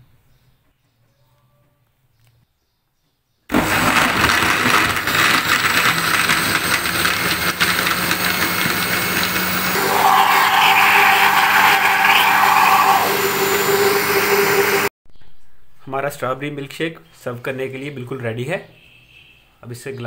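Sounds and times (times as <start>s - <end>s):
blender chopping ice: 3.5s - 14.9s.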